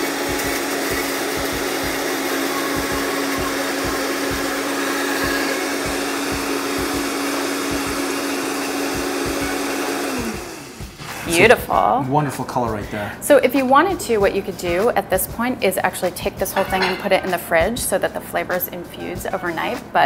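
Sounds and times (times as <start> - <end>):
blender motor running: 0.0 - 11.4.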